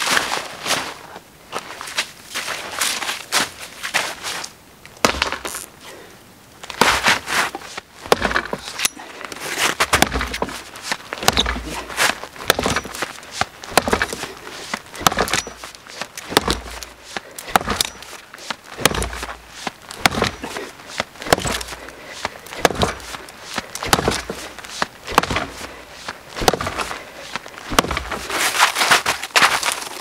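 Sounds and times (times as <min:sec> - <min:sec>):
axe chopping wood: 0:05.0 - 0:05.6, 0:08.0 - 0:09.0, 0:09.8 - 0:25.7, 0:26.4 - 0:27.0, 0:27.7 - 0:29.6
wood splintering: 0:05.0 - 0:05.7, 0:06.7 - 0:30.0.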